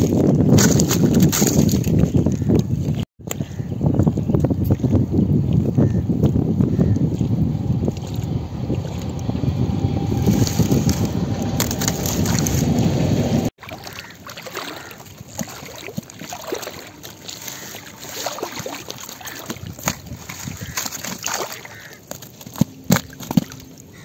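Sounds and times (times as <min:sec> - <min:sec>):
wind buffeting microphone: 0:00.0 - 0:13.5, 0:14.8 - 0:21.8
outdoor water sounds: 0:00.0 - 0:24.0
small clicks and splashes: 0:13.6 - 0:24.0.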